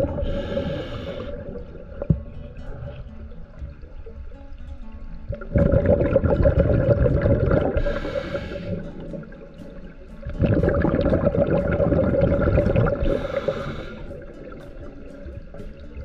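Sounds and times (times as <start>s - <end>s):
regulator inhale hiss: 0.0s - 1.8s, 7.7s - 9.2s, 12.9s - 14.5s
bubbling underwater exhales: 5.4s - 9.4s, 10.4s - 14.3s.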